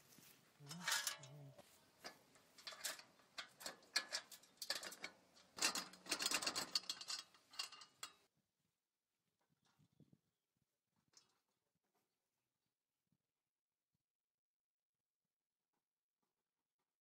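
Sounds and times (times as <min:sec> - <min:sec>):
chain links rattling on metal frame: 0:00.6 - 0:08.2.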